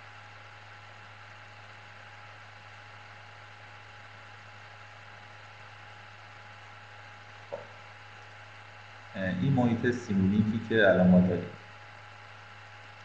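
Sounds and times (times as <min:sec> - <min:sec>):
low electrical hum with hiss: 0:00.0 - 0:13.0.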